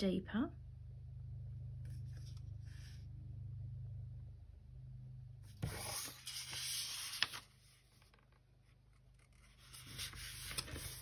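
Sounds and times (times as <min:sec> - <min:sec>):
low steady hum: 0:00.0 - 0:11.0
paper rustling and sliding: 0:05.5 - 0:11.0.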